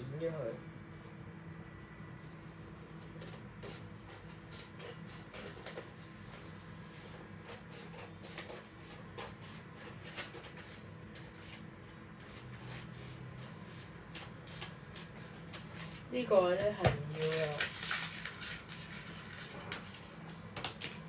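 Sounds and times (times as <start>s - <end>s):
steady low hum: 0.0s - 21.0s
paper rustling: 17.0s - 21.0s.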